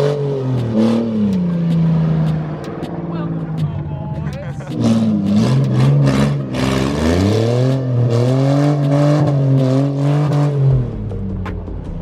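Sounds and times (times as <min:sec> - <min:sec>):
car engine revving: 0:00.0 - 0:12.0.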